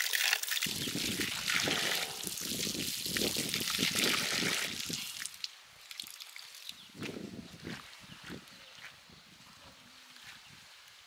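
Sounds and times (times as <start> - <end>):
water trickling and pouring: 0.0 - 6.9.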